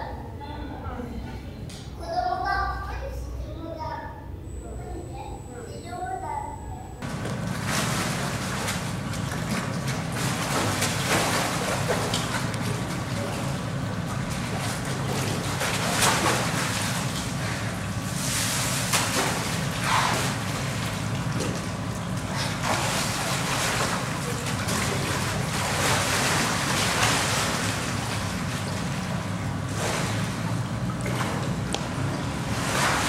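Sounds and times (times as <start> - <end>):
steady low hum: 0.0 - 33.0
water sloshing and splashing: 7.0 - 33.0.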